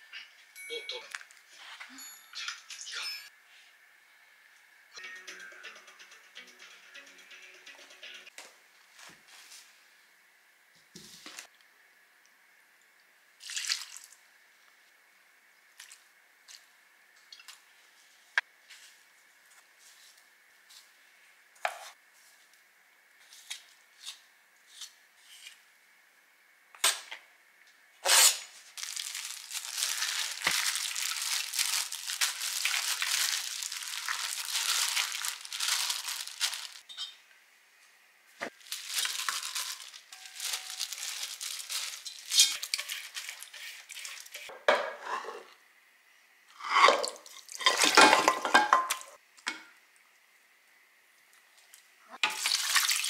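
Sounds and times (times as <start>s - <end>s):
rustling and scraping greens: 8.9s - 9.9s, 17.7s - 21.0s, 28.1s - 36.9s, 38.4s - 45.4s
pot and dishes clattering: 46.7s - 49.1s.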